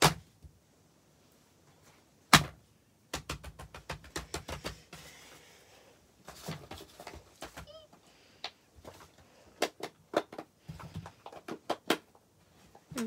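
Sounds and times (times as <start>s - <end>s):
plastic toy knocking on paper: 3.1s - 5.1s.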